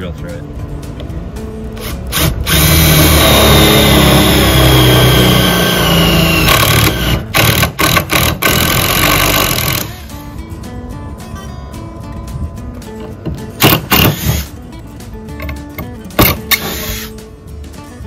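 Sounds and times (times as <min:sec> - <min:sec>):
drill boring through steel: 0:01.8 - 0:10.1, 0:16.5 - 0:17.2.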